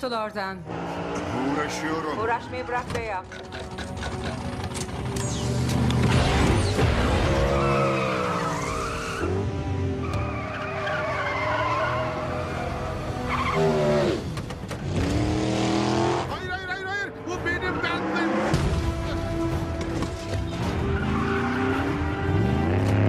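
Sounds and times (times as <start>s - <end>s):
film score music: 0.0s - 23.0s
car engines revving: 0.6s - 23.0s
tyres squealing in a burnout: 6.5s - 9.4s, 10.0s - 14.2s, 20.5s - 22.9s.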